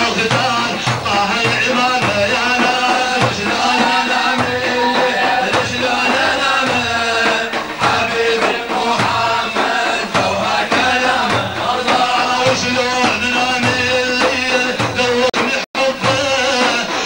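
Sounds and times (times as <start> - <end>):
man singing: 0.0 - 17.0
music with steady percussion: 0.0 - 17.0.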